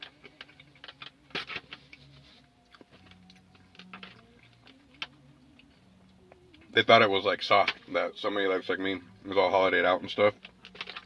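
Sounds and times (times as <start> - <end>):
person chewing: 2.6 - 3.6.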